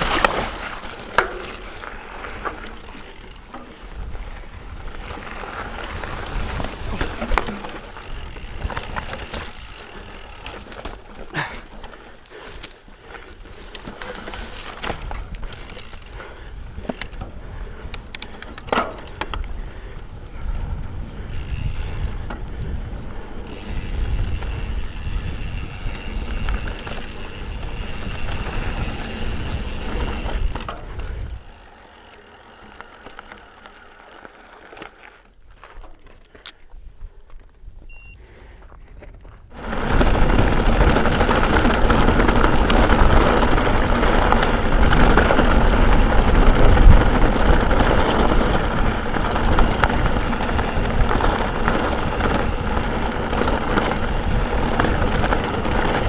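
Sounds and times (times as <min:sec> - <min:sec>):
bike clicks and rattles: 0:00.0 - 0:37.9, 0:38.5 - 0:56.0
bike tyre noise: 0:00.0 - 0:56.0
wind rumble on microphone: 0:14.8 - 0:31.5, 0:38.9 - 0:56.0.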